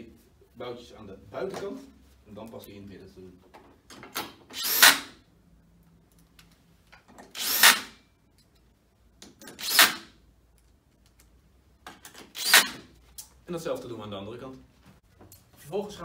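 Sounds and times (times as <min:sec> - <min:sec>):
cordless drill driving bolts into metal: 0:04.0 - 0:05.2, 0:07.2 - 0:08.0, 0:09.4 - 0:10.2, 0:12.1 - 0:12.9.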